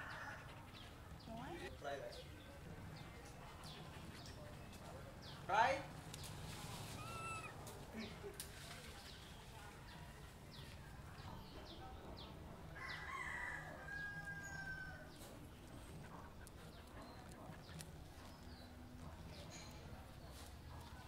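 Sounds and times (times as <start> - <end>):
small birds chirping: 0.0 - 13.2, 13.9 - 21.0
rooster crowing: 12.8 - 15.1.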